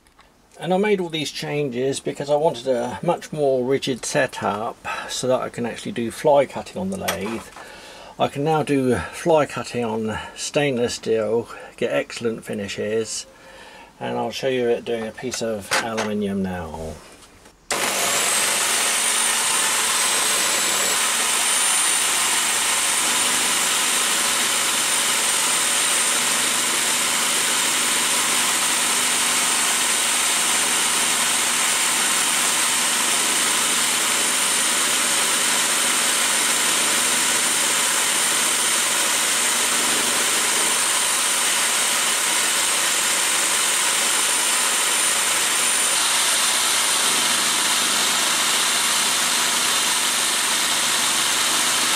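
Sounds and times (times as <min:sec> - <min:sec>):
power drill cutting metal: 0:17.7 - 0:51.9.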